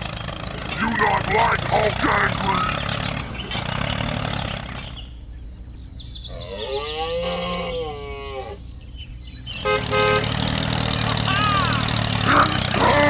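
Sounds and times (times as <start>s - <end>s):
low engine-like hum: 0.0s - 13.0s.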